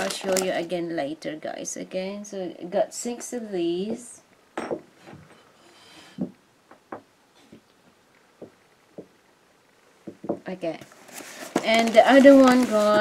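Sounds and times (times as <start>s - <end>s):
small items tapping and knocking: 0.0s - 0.7s, 10.0s - 13.0s.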